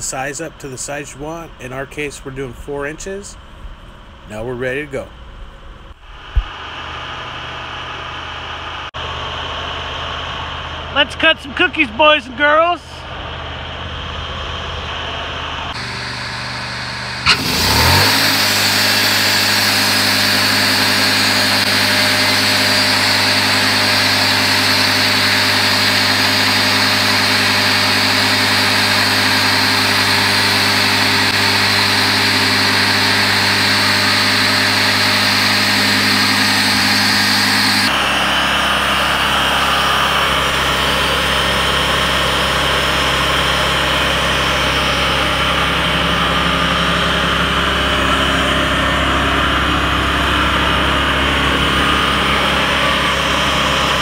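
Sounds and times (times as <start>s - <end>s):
sawmill engine running: 6.1s - 54.0s
band saw cutting wood: 15.7s - 54.0s.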